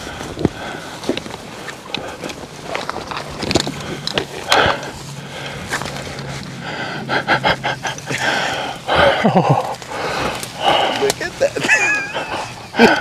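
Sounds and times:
person panting and gasping: 0.0 - 2.4, 3.5 - 13.0
clothing rustling and clicking: 0.0 - 6.6
strained breaths: 0.0 - 13.0.

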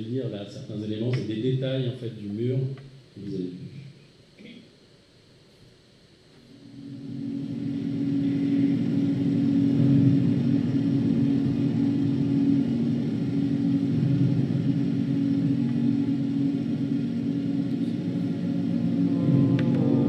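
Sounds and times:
low electronic drone: 6.5 - 20.0.

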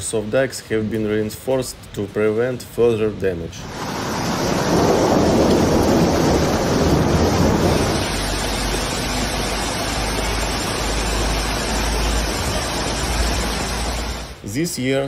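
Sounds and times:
floodwater rushing past piers: 0.0 - 14.9
water pouring onto pavement: 3.6 - 14.4.

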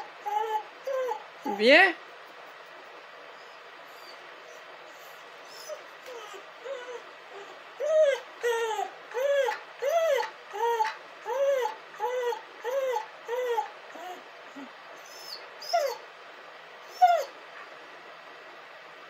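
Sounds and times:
dog whining: 0.0 - 1.7, 3.2 - 16.1, 16.8 - 17.4.

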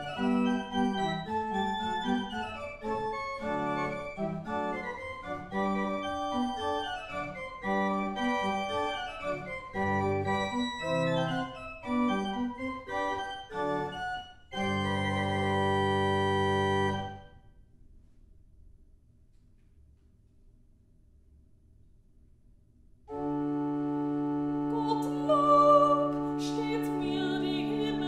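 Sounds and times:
pipe organ playing: 0.0 - 17.4, 23.1 - 25.3.

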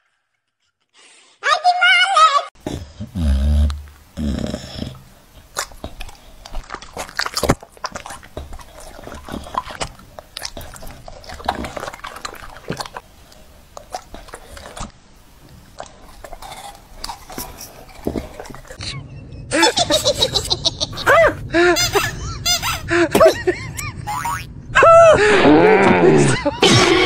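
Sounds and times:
dog chewing and licking: 3.7 - 18.8.

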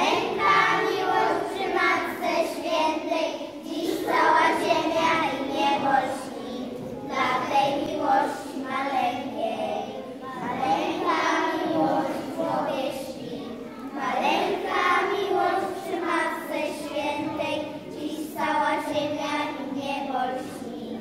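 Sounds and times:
children singing a carol: 0.0 - 21.0.

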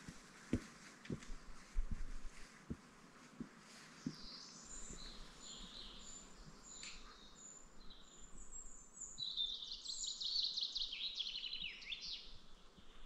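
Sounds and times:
small songbird singing: 4.0 - 13.0.

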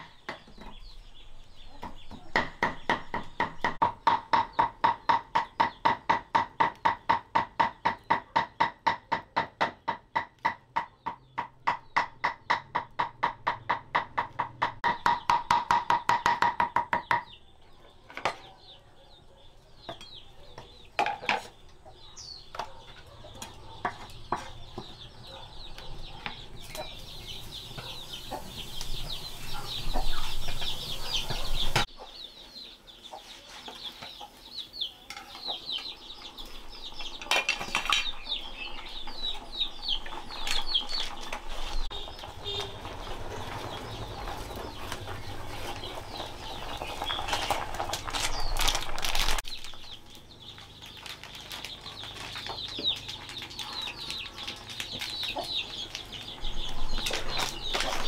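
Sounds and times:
chickens cheeping and clucking: 0.0 - 15.4, 16.6 - 58.0.

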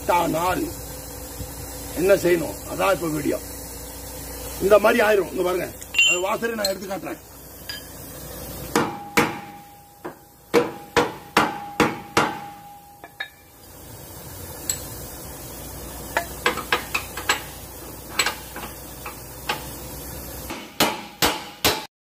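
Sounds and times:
socket wrench metal clinks: 5.8 - 6.8
steel striking steel: 5.9 - 6.8, 8.7 - 13.5.

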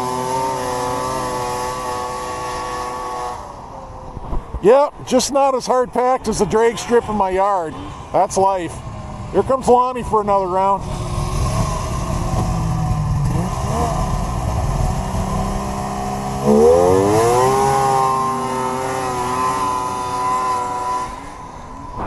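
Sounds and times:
snowmobile engine revving: 0.0 - 3.7, 9.3 - 22.0.

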